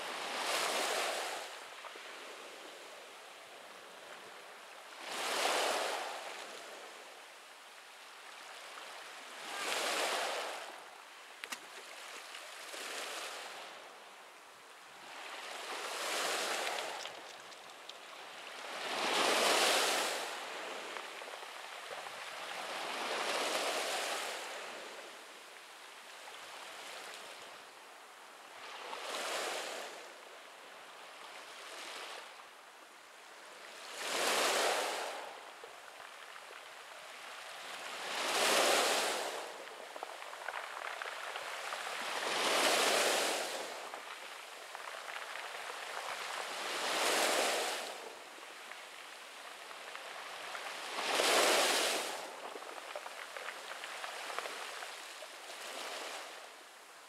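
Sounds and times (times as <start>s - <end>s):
waves washing up pebble beach: 9.4s - 10.7s, 15.1s - 21.2s, 34.0s - 35.3s, 37.8s - 48.8s, 49.4s - 56.4s.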